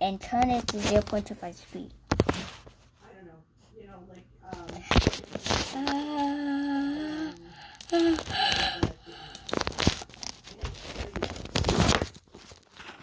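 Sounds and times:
held hum: 0:05.6 - 0:10.1.

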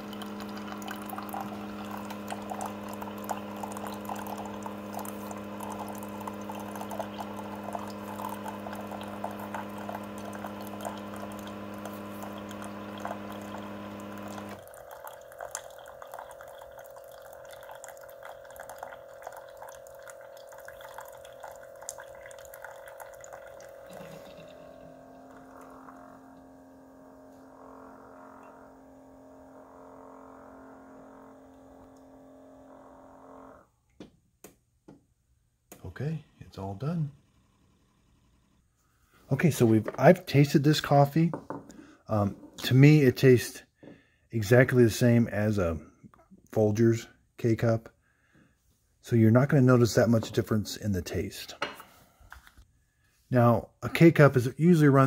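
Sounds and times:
coffee stream splashing into mug: 0:00.0 - 0:26.0
coffee trickling and dripping: 0:00.0 - 0:26.6
coffee machine humming: 0:00.0 - 0:33.7, 0:35.8 - 0:43.4.

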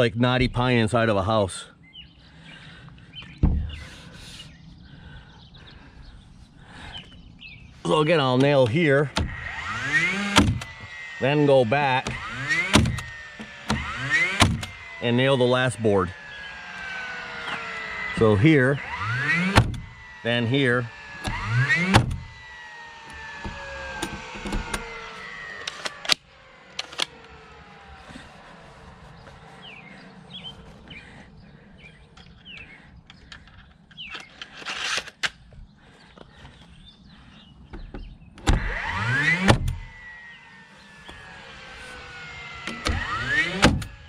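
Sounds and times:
nail gun motor whine: 0:03.0 - 0:44.0
nail gun firing: 0:08.4 - 0:10.9, 0:11.9 - 0:15.0, 0:18.9 - 0:20.1, 0:20.9 - 0:27.2, 0:38.5 - 0:39.9, 0:42.6 - 0:44.0.

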